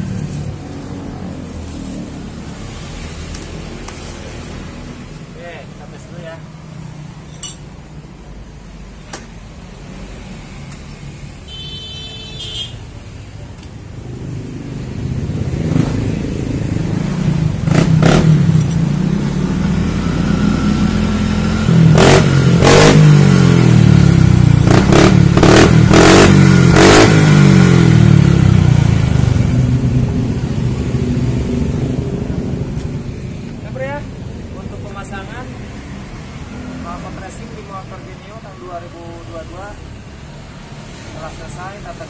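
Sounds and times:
scooter engine revving: 0:14.1 - 0:33.2.

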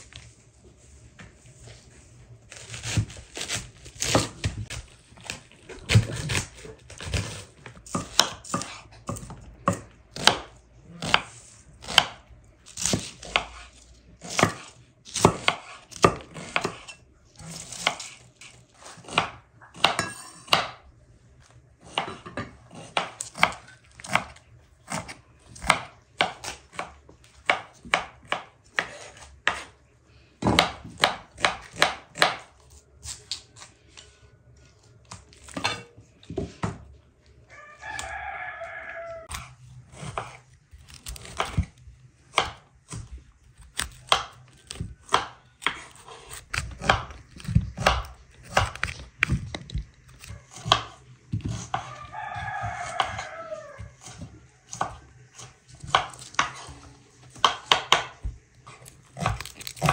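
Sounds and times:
knife cutting crisp vegetables: 0:02.5 - 0:20.0, 0:39.3 - 0:52.0, 0:52.7 - 0:59.9.

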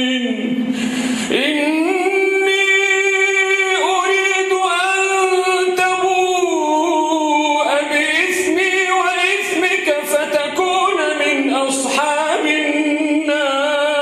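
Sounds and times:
man chanting melodically: 0:00.0 - 0:14.0.

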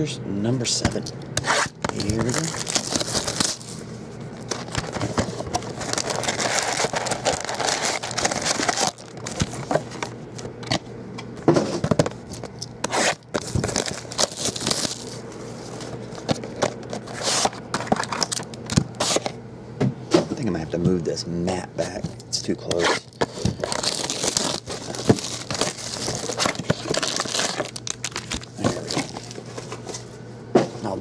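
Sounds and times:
foil wrappers crinkling: 0:01.4 - 0:10.5, 0:11.9 - 0:19.3, 0:21.9 - 0:30.1
card packs tapping and knocking: 0:01.8 - 0:03.6, 0:23.2 - 0:30.0
cardboard scraping: 0:04.5 - 0:10.1, 0:12.8 - 0:18.1, 0:22.8 - 0:30.1.

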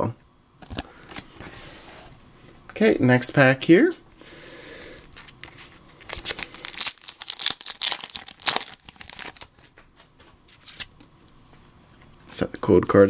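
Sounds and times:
foil wrapper tearing and crinkling: 0:05.2 - 0:09.7.

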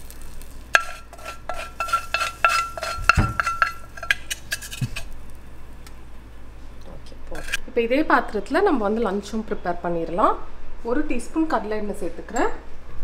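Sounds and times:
spatula clinking on metal: 0:00.7 - 0:04.8.

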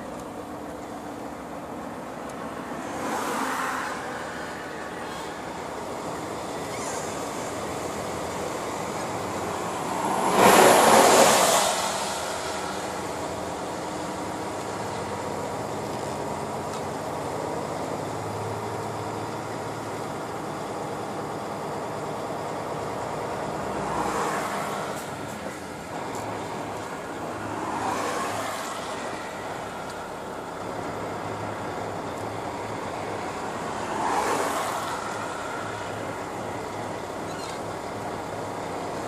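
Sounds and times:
truck engine and road noise: 0:00.0 - 0:39.0
vehicle passing on wet road: 0:09.6 - 0:12.8.

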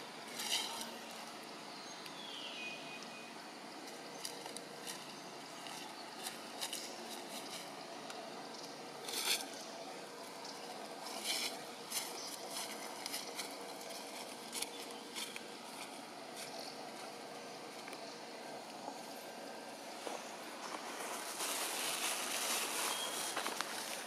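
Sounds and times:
outdoor background hiss: 0:00.0 - 0:24.0
dry leaves rustling and crackling: 0:03.8 - 0:08.3, 0:09.0 - 0:18.1, 0:19.6 - 0:24.0.

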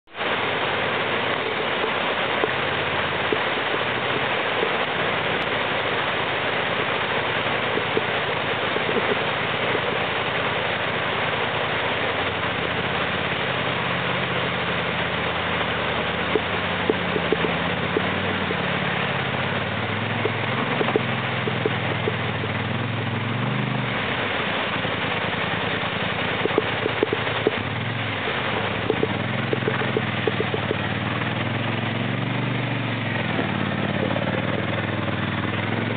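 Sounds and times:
creek water rushing over rocks: 0:00.0 - 0:35.9
atv engine revving: 0:12.2 - 0:35.9.

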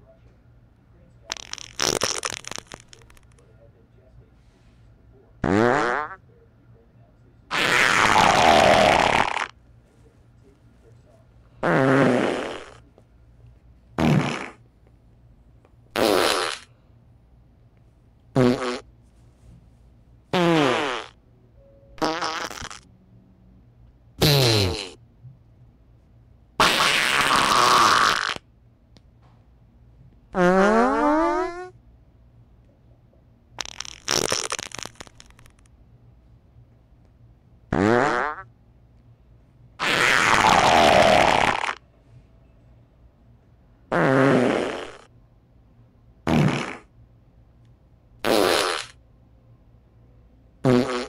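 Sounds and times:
fart sound effects: 0:01.3 - 0:03.4, 0:05.4 - 0:06.2, 0:07.5 - 0:09.6, 0:11.6 - 0:12.8, 0:14.0 - 0:14.6, 0:15.9 - 0:16.7, 0:18.3 - 0:18.9, 0:20.3 - 0:21.2, 0:22.0 - 0:22.9, 0:24.2 - 0:25.0, 0:26.6 - 0:28.4, 0:30.3 - 0:31.7, 0:33.6 - 0:35.6, 0:37.7 - 0:38.5, 0:39.8 - 0:41.8, 0:43.9 - 0:45.1, 0:46.3 - 0:46.9, 0:48.2 - 0:49.0, 0:50.6 - 0:51.0.

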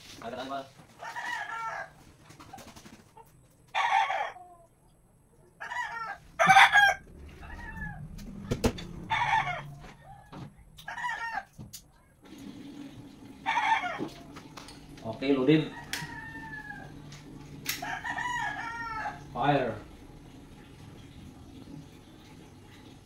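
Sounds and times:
chickens calling: 0:00.9 - 0:11.6, 0:13.2 - 0:19.4.

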